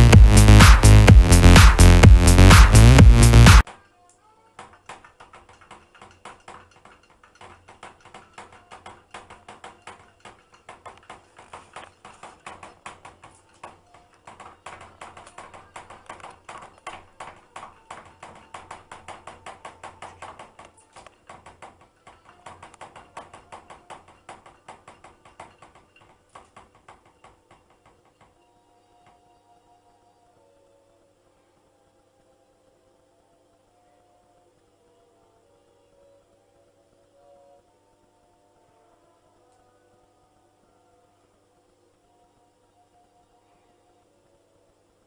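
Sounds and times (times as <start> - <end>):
paws scratching metal drum: 4.7 - 28.4.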